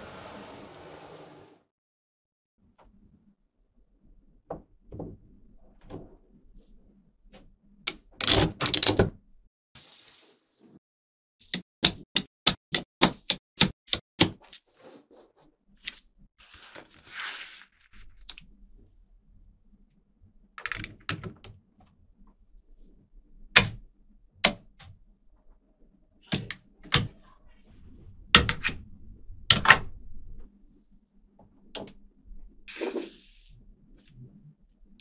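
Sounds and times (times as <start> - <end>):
balls rustling and sliding: 14.5 - 18.3, 32.7 - 34.4.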